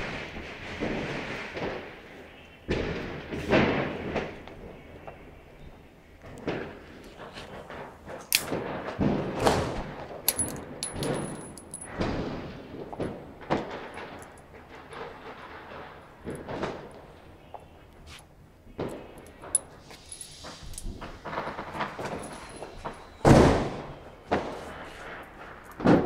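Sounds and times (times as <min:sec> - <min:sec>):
revolver and cartridges clinking: 0:10.3 - 0:12.0, 0:13.8 - 0:15.1, 0:18.8 - 0:23.2.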